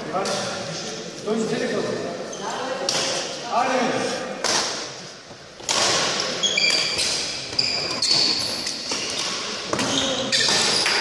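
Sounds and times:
shoes squeaking on wooden floor: 6.4s - 11.0s.

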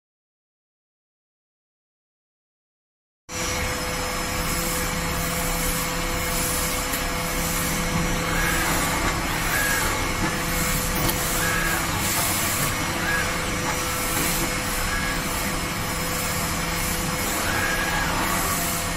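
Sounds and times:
machine humming: 3.3s - 18.9s
machine hissing bursts: 4.2s - 18.9s
machine chirps: 7.4s - 18.9s.

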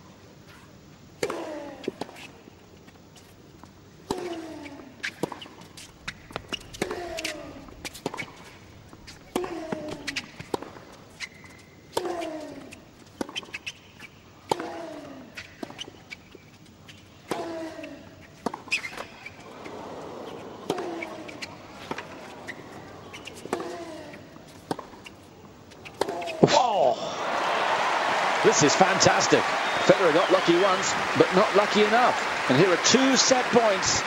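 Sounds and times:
tennis ball bouncing: 4.0s - 16.5s, 17.2s - 26.6s
racket striking tennis ball: 20.5s - 25.2s, 25.8s - 26.6s.

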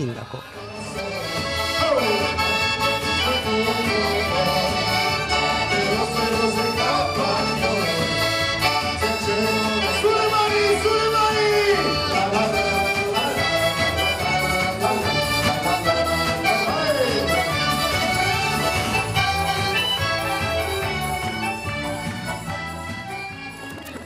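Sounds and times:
man singing into a microphone: 0.0s - 17.8s
button accordion folk dance music: 0.0s - 24.0s.

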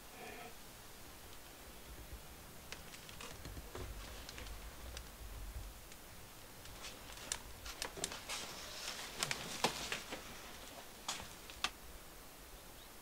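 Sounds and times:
plastic bag crinkling: 6.6s - 11.7s.

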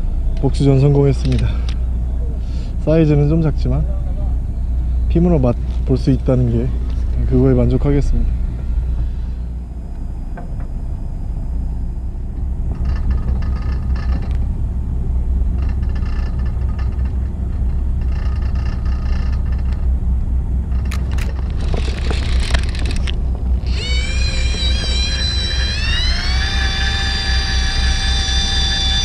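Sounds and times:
boat low rumble: 0.0s - 29.0s
sharp clicks: 20.7s - 29.0s.

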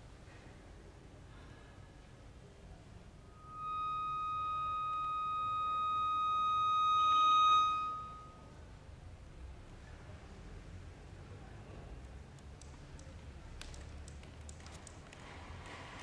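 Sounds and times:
accordion holding a high note: 3.3s - 8.4s.

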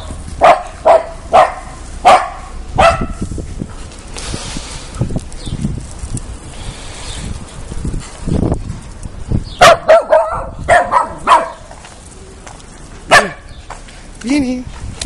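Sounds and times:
puppy yapping: 9.6s - 11.7s, 13.1s - 13.5s.

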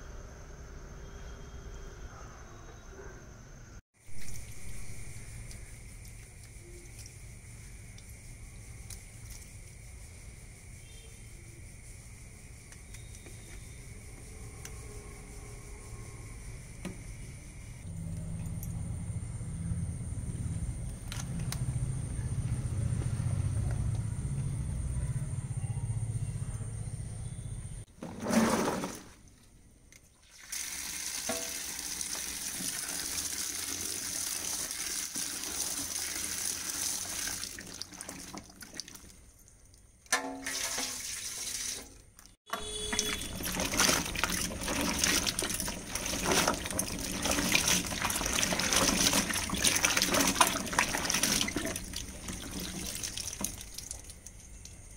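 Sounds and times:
water pouring: 4.0s - 5.6s, 28.0s - 29.2s, 30.1s - 54.9s
hands splashing water: 42.9s - 54.4s.

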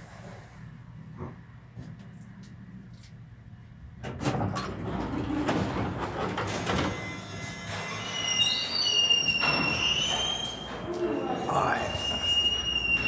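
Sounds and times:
elevator doors sliding open: 4.0s - 13.0s
high squeal: 6.9s - 13.0s.

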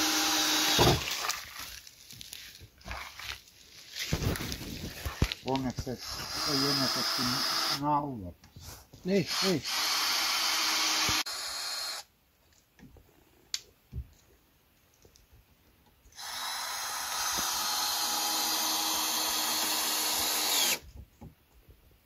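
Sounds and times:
power drill running: 0.0s - 1.0s, 6.0s - 7.8s, 9.3s - 12.1s, 16.2s - 20.8s.

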